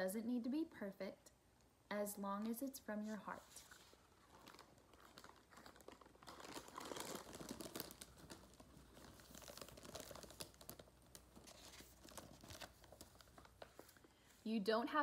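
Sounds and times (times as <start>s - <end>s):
book page turning: 3.2s - 14.4s
plastic snack bag crinkling: 3.4s - 14.3s.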